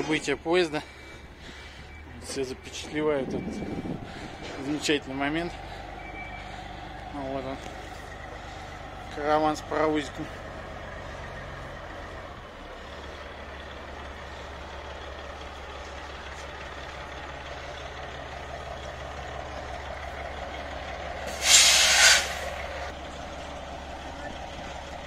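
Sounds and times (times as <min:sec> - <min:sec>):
truck diesel engine running: 0:00.0 - 0:25.0
air brakes hissing: 0:21.2 - 0:22.9.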